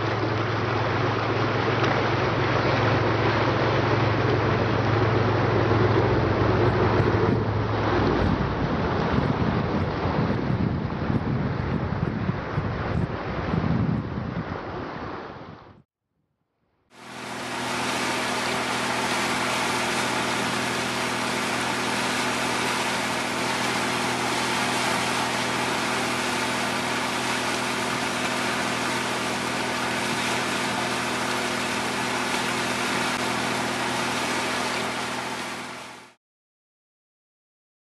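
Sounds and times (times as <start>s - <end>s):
boat engine droning: 0.0s - 10.6s, 16.9s - 36.2s
rush of boat wake: 0.0s - 15.8s, 16.9s - 36.2s.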